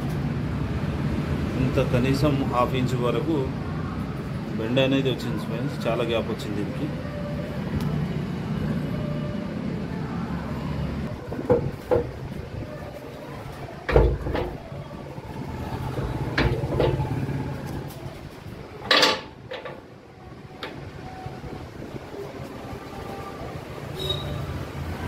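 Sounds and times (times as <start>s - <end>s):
steel tube clanking on press: 18.8s - 19.8s.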